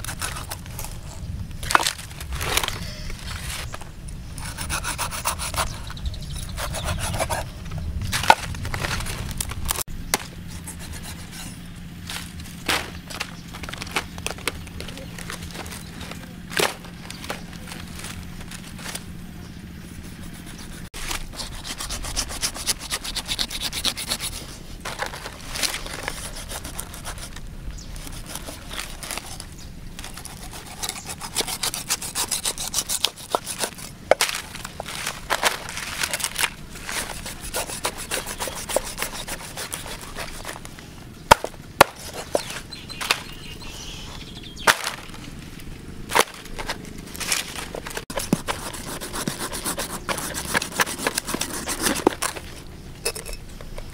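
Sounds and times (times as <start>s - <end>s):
cleaver scraping through flesh: 0.0s - 1.2s, 4.4s - 7.5s, 19.9s - 40.7s, 47.2s - 52.5s.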